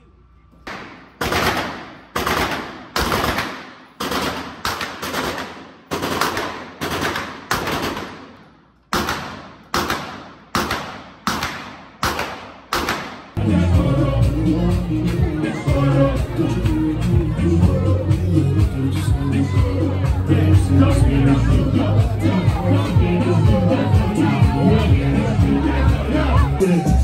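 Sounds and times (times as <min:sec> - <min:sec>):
gunshots with echoing tail: 0:00.7 - 0:13.4.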